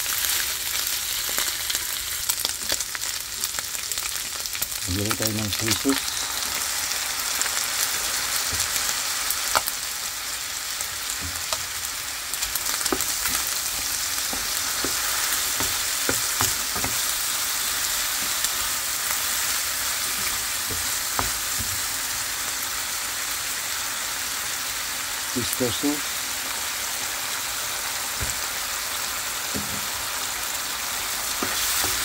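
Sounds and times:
chicken sizzling in oil: 0:00.0 - 0:32.0
spatula knocking against pan: 0:12.8 - 0:17.1.

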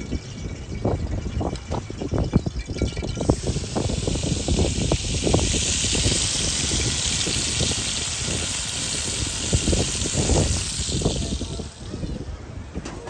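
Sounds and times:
gusty wind buffeting microphone: 0:00.0 - 0:13.0
steady high hiss: 0:03.2 - 0:12.4.

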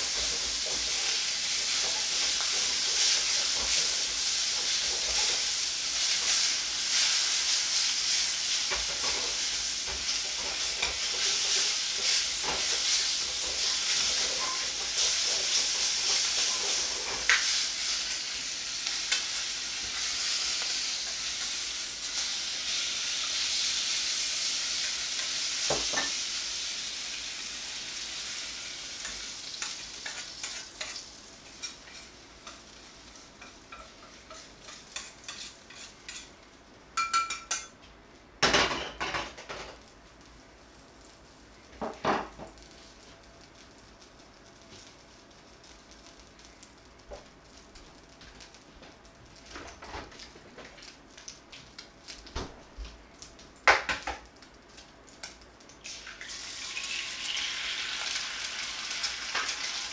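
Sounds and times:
meat sizzling in a wok: 0:00.0 - 0:37.7, 0:53.6 - 0:59.9.

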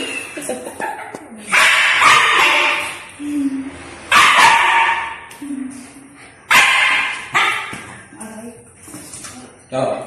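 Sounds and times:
puppy barking: 0:01.5 - 0:03.1, 0:04.1 - 0:05.2, 0:06.5 - 0:07.8.

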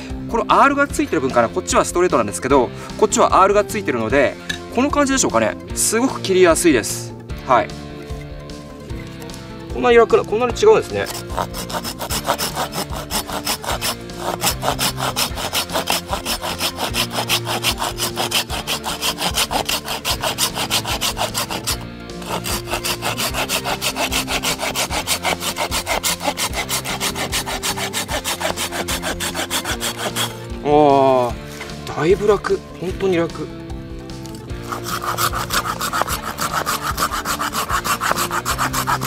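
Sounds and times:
hand saw cutting wood: 0:10.8 - 0:30.5, 0:34.2 - 0:39.0.

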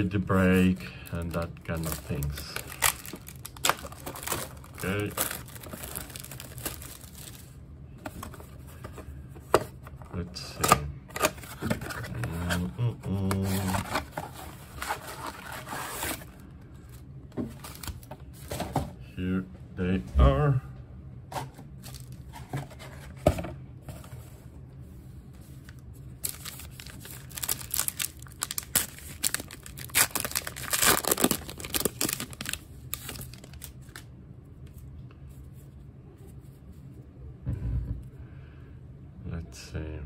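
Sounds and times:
wrapper tearing and crinkling: 0:01.2 - 0:07.6, 0:26.2 - 0:34.0.

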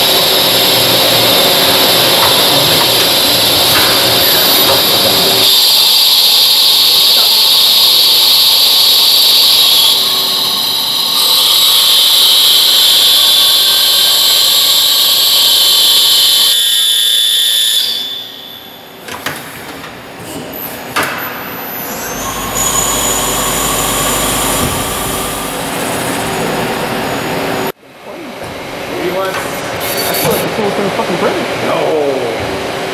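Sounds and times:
lathe cutting metal: 0:00.0 - 0:16.9, 0:21.6 - 0:27.7.

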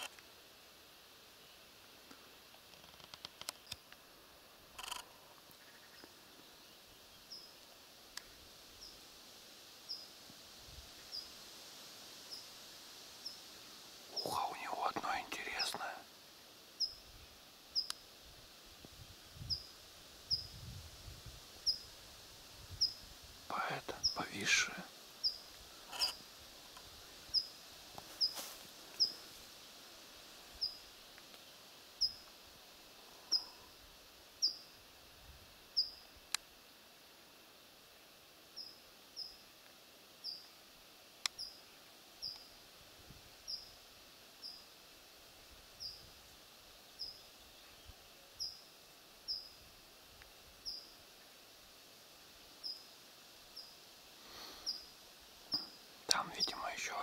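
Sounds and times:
faint ticks: 0:00.0 - 0:00.3, 0:02.0 - 0:04.1, 0:04.7 - 0:06.5, 0:07.3 - 0:09.0, 0:17.8 - 0:18.1, 0:25.2 - 0:29.3, 0:30.6 - 0:32.4, 0:33.2 - 0:33.6, 0:35.8 - 0:36.5, 0:38.6 - 0:40.5, 0:41.2 - 0:41.6, 0:42.2 - 0:42.5, 0:50.1 - 0:51.4
woodland background noise: 0:00.0 - 0:57.0
small bird calling: 0:05.5 - 0:07.6, 0:23.8 - 0:26.2, 0:28.2 - 0:29.2, 0:34.4 - 0:34.7, 0:47.0 - 0:48.7, 0:50.6 - 0:51.0, 0:53.6 - 0:57.0.

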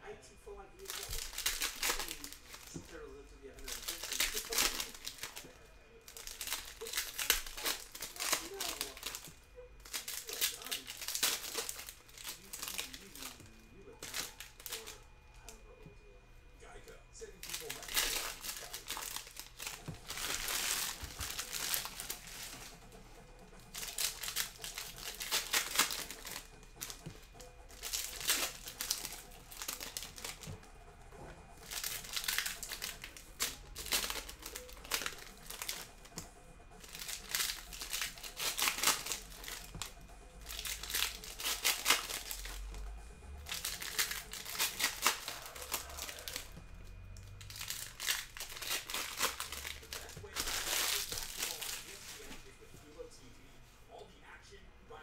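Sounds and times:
foil wrappers crinkling and tearing: 0:00.5 - 0:15.8, 0:17.2 - 0:53.0.

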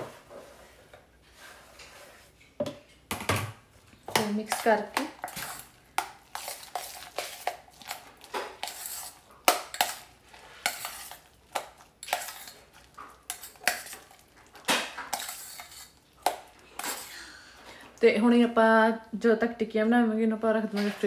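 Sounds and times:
utensil scraping metal bowl: 0:04.1 - 0:17.2.

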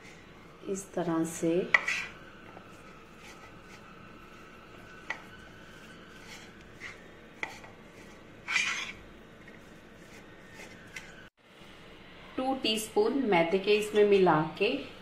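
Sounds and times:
spoon scraping plate: 0:01.7 - 0:02.2, 0:06.1 - 0:11.1.

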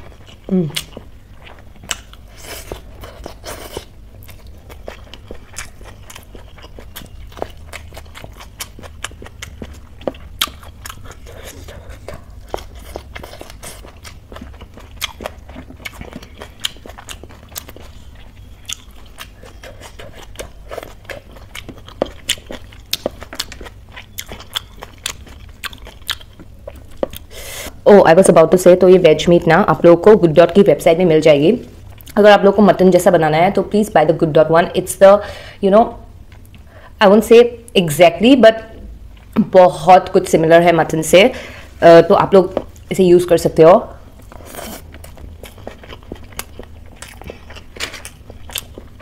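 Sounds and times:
person chewing food: 0:00.0 - 0:27.8, 0:31.8 - 0:32.2, 0:36.2 - 0:36.8, 0:39.1 - 0:39.4, 0:44.0 - 0:49.0.

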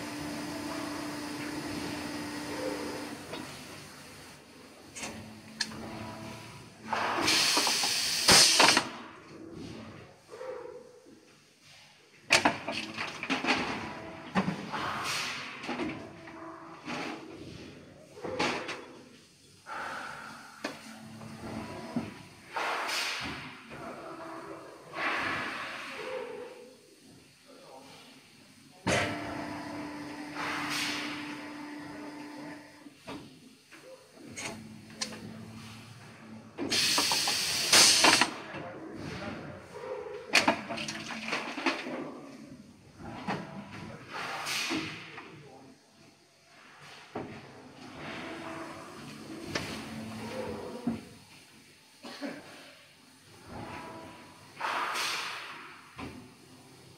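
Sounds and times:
compressed air hiss: 0:07.1 - 0:08.9, 0:22.5 - 0:23.4, 0:36.7 - 0:38.2, 0:54.6 - 0:55.9.

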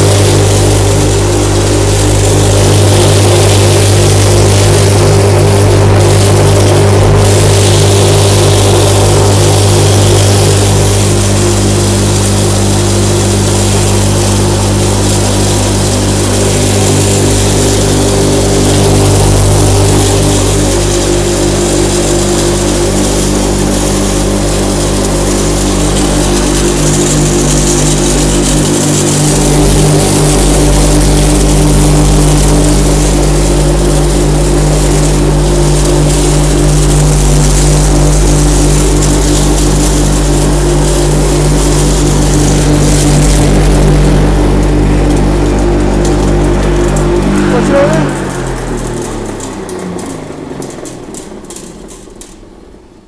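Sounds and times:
grain grinding: 0:00.0 - 0:51.9
electric motor hum: 0:00.0 - 0:52.7.

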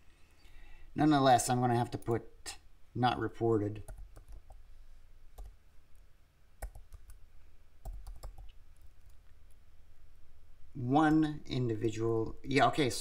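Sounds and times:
computer keyboard typing: 0:03.9 - 0:04.6, 0:05.4 - 0:05.6, 0:06.6 - 0:07.2, 0:07.8 - 0:09.2.

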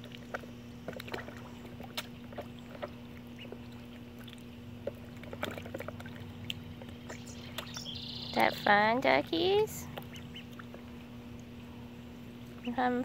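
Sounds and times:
water drips: 0:00.0 - 0:08.7
ducklings splashing in water: 0:00.0 - 0:13.0
steady low hum: 0:00.0 - 0:13.0.

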